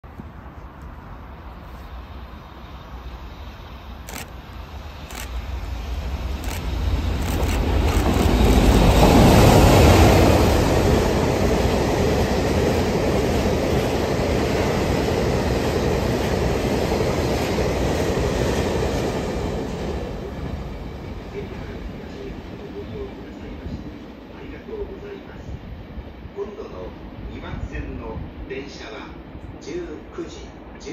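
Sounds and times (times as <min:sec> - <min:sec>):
locomotive rumbling past: 0:00.2 - 0:22.8
wagons rumbling and rattling: 0:06.4 - 0:09.3.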